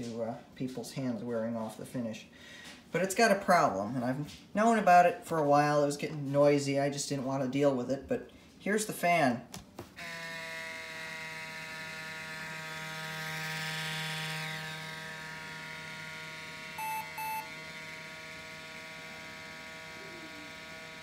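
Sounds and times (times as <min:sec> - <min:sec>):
laptop cooling fan whining: 0:10.5 - 0:21.0
laptop short beeps: 0:16.8 - 0:17.5.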